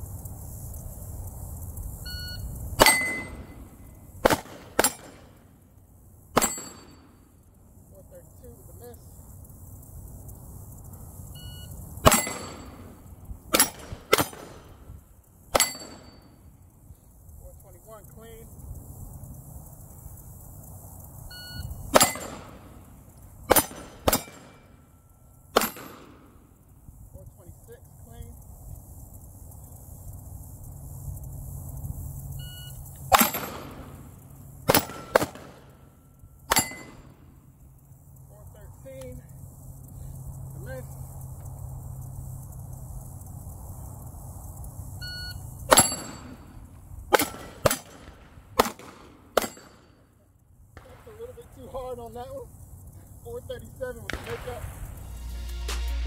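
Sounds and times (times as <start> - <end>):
steel target ringing: 2.8 - 5.2, 6.4 - 7.4, 12.0 - 14.5, 15.5 - 16.5, 21.9 - 22.7, 23.5 - 24.8, 33.1 - 34.1, 34.7 - 35.5, 36.4 - 37.3, 45.7 - 47.6, 49.4 - 50.0
pistol shots: 4.2 - 5.4, 6.4 - 7.1, 12.0 - 14.8, 21.9 - 22.8, 23.5 - 24.7, 25.5 - 26.4, 33.1 - 34.1, 34.7 - 35.8, 47.1 - 49.9, 54.1 - 54.8.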